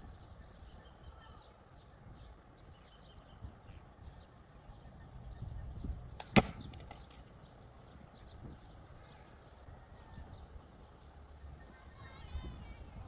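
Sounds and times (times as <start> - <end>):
faint bird chirps: 0.0 - 6.2, 6.9 - 13.0
low wind rumble: 0.0 - 13.0
steel ball cracking into box: 6.2 - 7.2.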